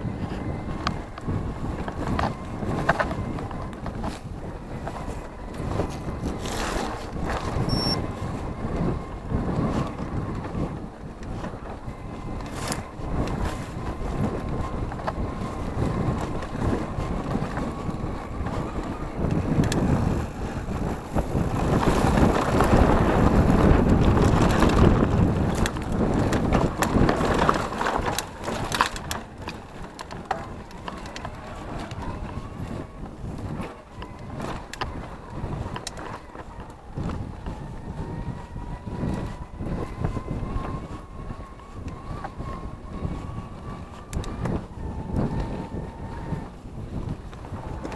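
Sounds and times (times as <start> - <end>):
bike rattling over bumps: 0.0 - 47.9
wind buffeting microphone: 0.0 - 47.9
tyres crunching over dirt and stones: 21.7 - 37.6.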